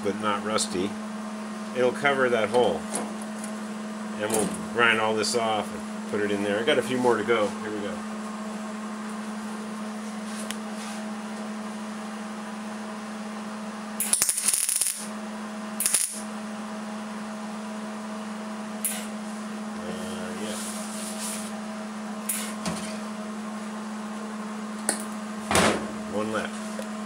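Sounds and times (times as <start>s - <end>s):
steady hum: 0.0s - 27.0s
welding arc: 14.0s - 15.1s, 15.8s - 16.3s, 18.8s - 19.1s.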